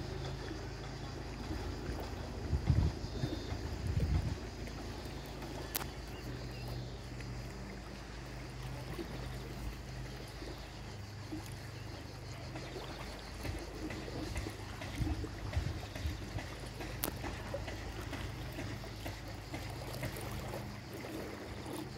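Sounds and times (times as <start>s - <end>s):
steady low hum: 0.0s - 21.9s
water splashing and lapping: 0.0s - 21.9s.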